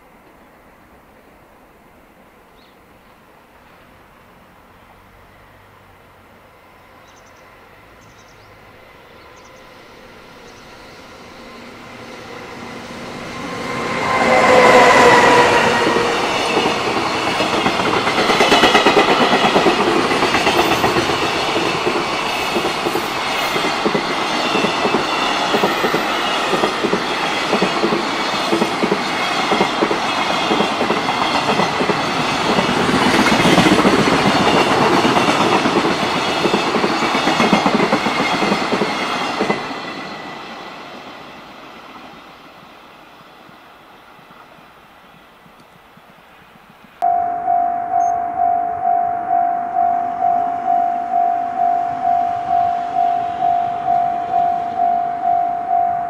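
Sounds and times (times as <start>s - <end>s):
electric locomotive passing: 0.0s - 56.0s
falling pitched tone: 47.0s - 56.0s.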